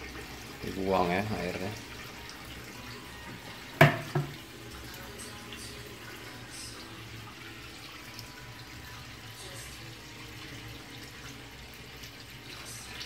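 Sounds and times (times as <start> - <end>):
water draining into metal sink: 0.0 - 5.1
sharp knocks: 3.8 - 4.3.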